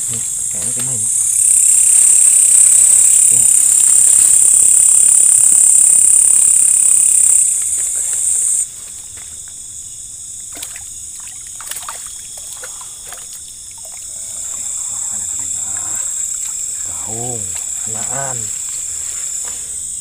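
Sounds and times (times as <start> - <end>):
insect chorus: 0.0 - 20.0
water splashes and drips: 10.4 - 14.6
fish thrashing at surface: 10.5 - 14.3.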